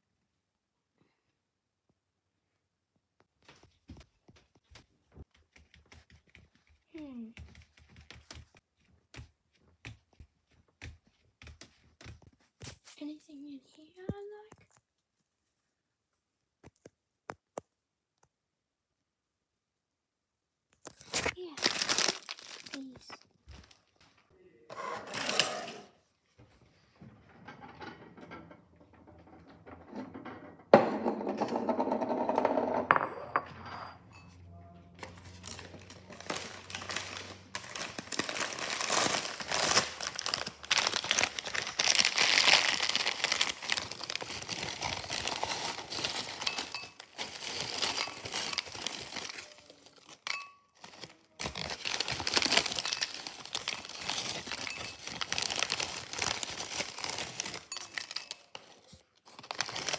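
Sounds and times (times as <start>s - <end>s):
foil bag crinkling: 20.9s - 23.9s, 35.2s - 59.9s
crackers rattling into ceramic bowl: 21.5s - 23.1s, 35.3s - 59.9s.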